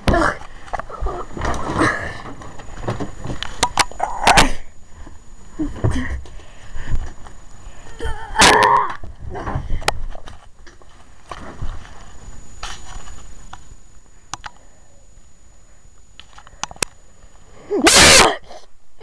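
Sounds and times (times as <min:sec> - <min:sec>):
phone handling rustling and clicks: 0:02.4 - 0:04.0.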